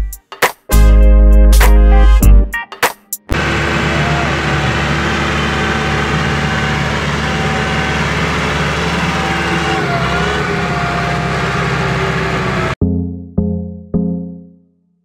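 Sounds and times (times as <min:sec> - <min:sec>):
diesel engine running: 0:03.3 - 0:12.8.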